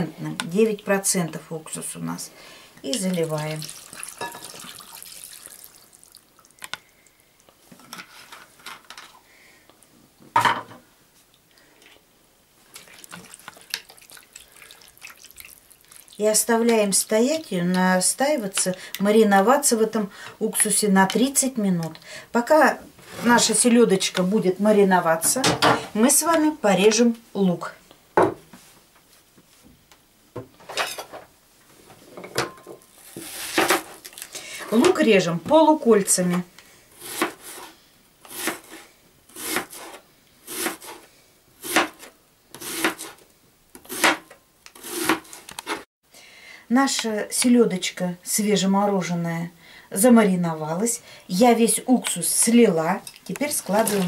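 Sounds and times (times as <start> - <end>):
vinegar pouring splash: 2.9 - 6.6, 12.7 - 16.2
knife slicing onion: 37.0 - 41.0, 41.6 - 43.2, 43.8 - 45.8.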